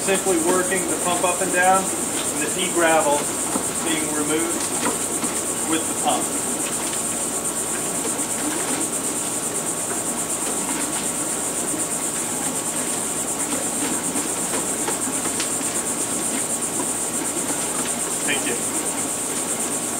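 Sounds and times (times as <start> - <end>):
air-lift pump churning water: 0.0 - 19.9
high-pitched fluttering hiss: 0.0 - 19.9.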